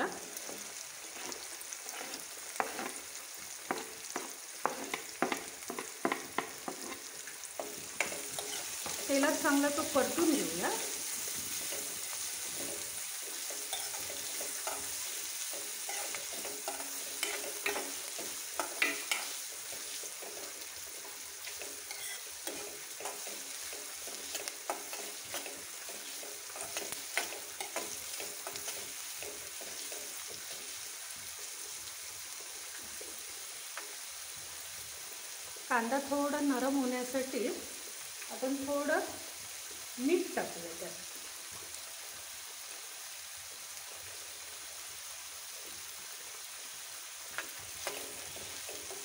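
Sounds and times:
onions sizzling in hot oil: 0.0 - 49.0
steel spoon scraping pan: 7.7 - 9.2, 11.6 - 30.0.

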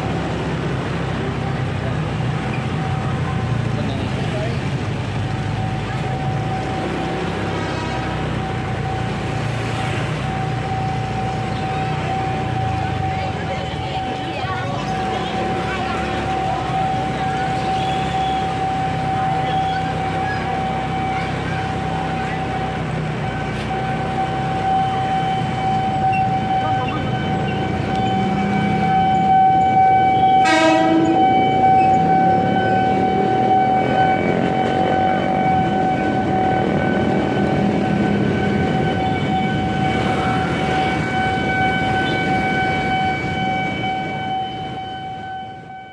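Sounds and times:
busy street noise: 0.0 - 45.9
motorcycle traffic: 0.0 - 45.9
horn blast: 30.2 - 32.7.

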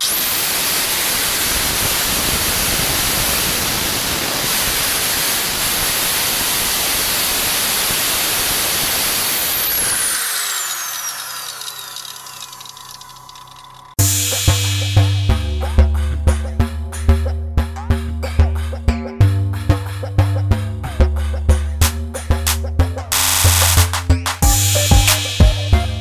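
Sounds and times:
angle grinder whirring: 0.0 - 14.9.

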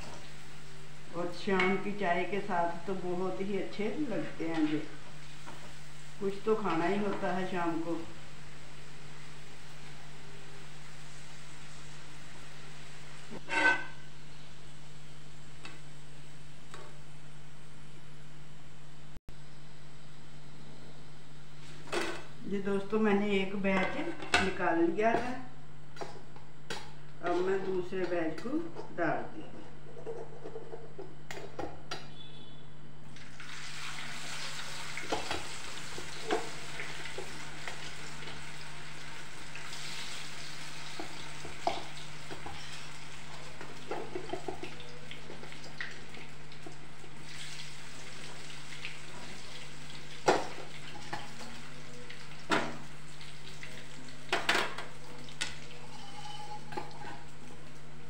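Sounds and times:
fries sizzling in hot oil: 0.0 - 19.0, 33.1 - 58.0.

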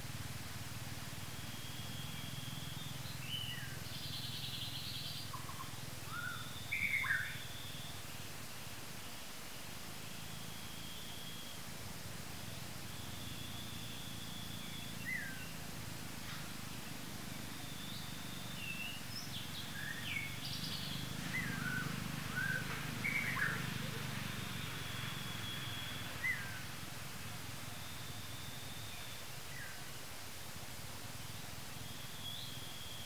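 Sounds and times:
birds chirping: 1.1 - 9.3, 10.0 - 30.1, 31.0 - 33.0
high bird whistles: 4.5 - 8.0, 12.9 - 15.6, 19.6 - 26.6.

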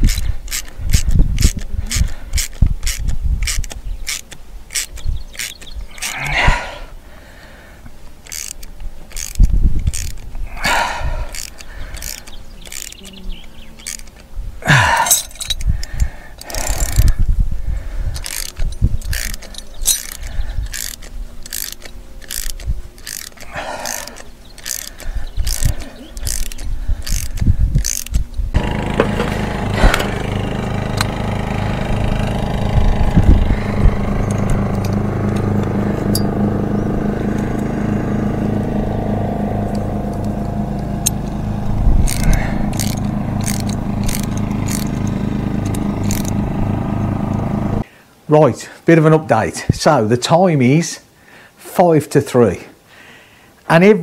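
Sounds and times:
ratchet tool clicking: 0.0 - 6.2, 8.1 - 10.4, 11.3 - 14.3, 15.0 - 17.2, 18.1 - 37.8, 39.5 - 47.4
scraping rasps: 0.0 - 6.7, 8.0 - 17.2, 18.1 - 47.9.

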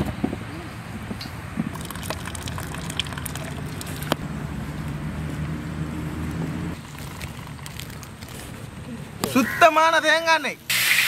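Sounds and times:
vehicle engine running: 1.7 - 8.8.

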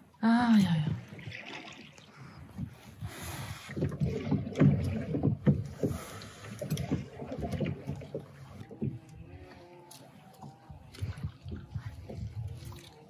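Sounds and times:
oars splashing in water: 0.0 - 13.0
oars knocking: 3.6 - 13.0.

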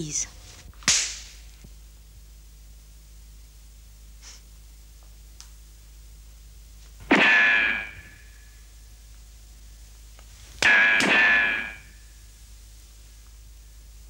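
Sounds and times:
metallic clang slap effect: 0.8 - 1.4, 7.1 - 8.2, 10.6 - 11.9.

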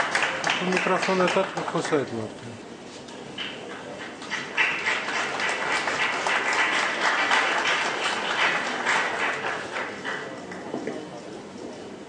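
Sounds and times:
audience applauding: 0.0 - 2.2, 3.4 - 10.7.

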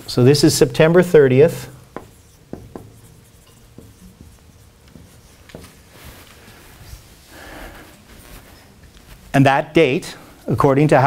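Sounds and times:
soft rubbing rustle: 0.0 - 11.0
marker writing on whiteboard: 0.7 - 7.0.

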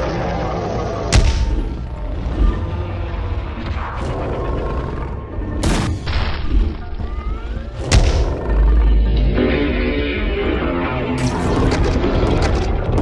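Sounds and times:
heavy low rumble with booms: 0.0 - 13.0.

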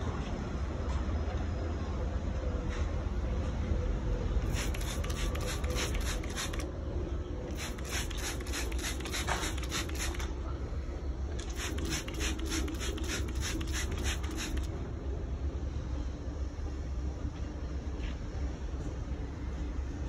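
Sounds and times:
spray bottle spritzing: 4.4 - 6.6, 7.5 - 10.3, 11.4 - 14.7.

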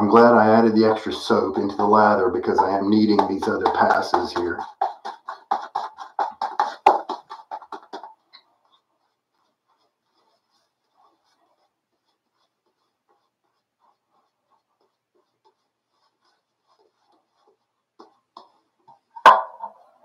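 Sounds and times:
shaving brush lathering: 0.0 - 19.0
clack on hard counter: 0.1 - 8.2, 19.2 - 19.8.

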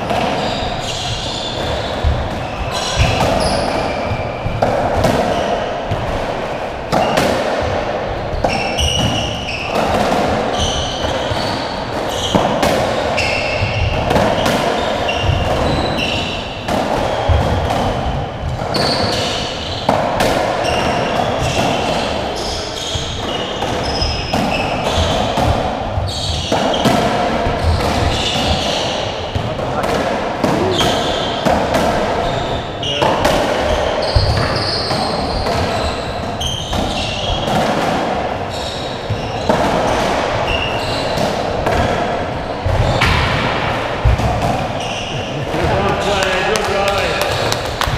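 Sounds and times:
racket hitting ball: 0.0 - 32.3, 33.0 - 47.9
shoes squeaking on wooden floor: 0.1 - 5.6, 8.3 - 9.9, 10.5 - 19.9, 25.9 - 26.9, 32.2 - 37.6, 38.4 - 47.9
ball hitting walls: 1.5 - 22.2, 22.8 - 47.9.

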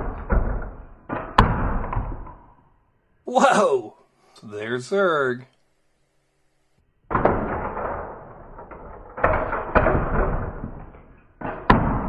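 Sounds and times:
slowed-down plastic toy thuds: 0.0 - 2.6, 7.1 - 12.0.

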